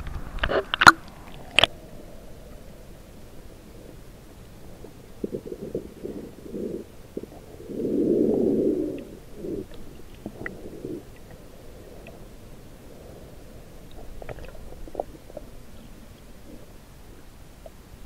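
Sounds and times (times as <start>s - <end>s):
muffled underwater rumbling: 0.0s - 18.0s.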